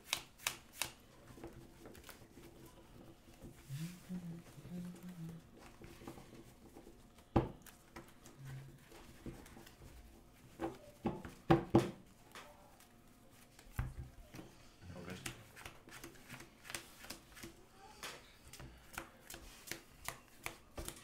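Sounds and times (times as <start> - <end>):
cards being shuffled: 0.0 - 2.6, 15.1 - 21.0
card decks knocking on table: 10.6 - 12.0.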